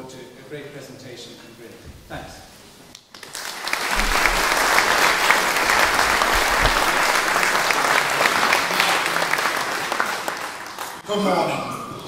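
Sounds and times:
audience applauding: 3.2s - 11.0s.

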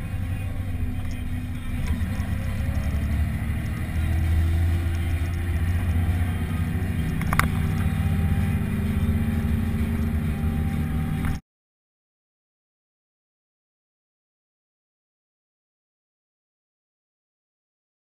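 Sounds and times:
tractor diesel engine droning: 0.0s - 11.4s
sharp click: 7.1s - 7.8s.

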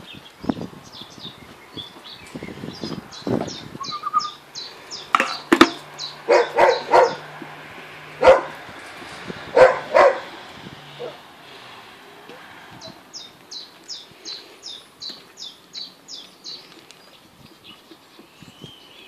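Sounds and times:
puppies squeaking: 3.6s - 4.4s
puppies yipping and barking: 5.0s - 7.6s, 8.2s - 11.3s.

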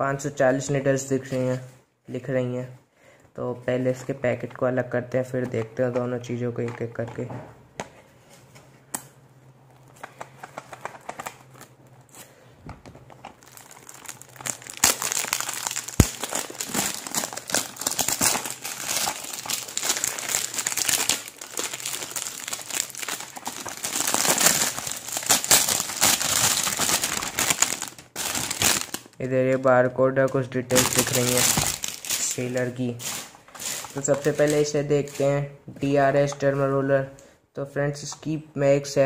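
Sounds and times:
plastic wrap crinkling: 9.7s - 35.5s.

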